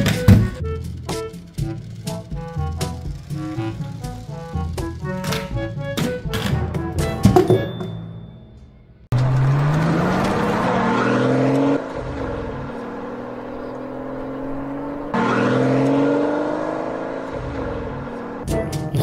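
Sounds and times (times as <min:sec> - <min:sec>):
recorded car engine revving: 0:00.0 - 0:07.1, 0:09.0 - 0:19.0.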